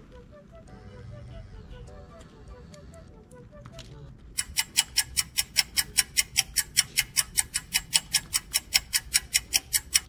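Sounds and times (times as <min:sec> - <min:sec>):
rapid even ticking: 0:04.4 - 0:10.0.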